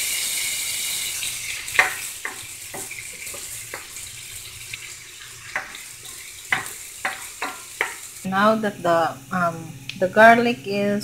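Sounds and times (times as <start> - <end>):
garlic sizzling in hot oil: 0.0 - 8.4
spoon knocking against pan: 1.7 - 4.0, 5.5 - 5.8, 6.5 - 8.1.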